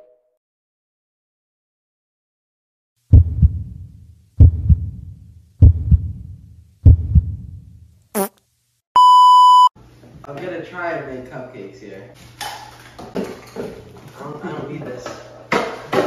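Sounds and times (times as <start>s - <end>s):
sharp steady beep: 9.0s - 9.7s.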